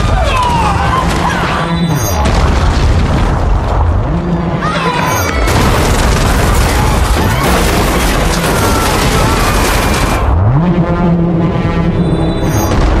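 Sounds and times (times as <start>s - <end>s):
rumbling and crashing roar: 0.0s - 13.0s
deep droning tone swooping upward: 10.3s - 12.4s.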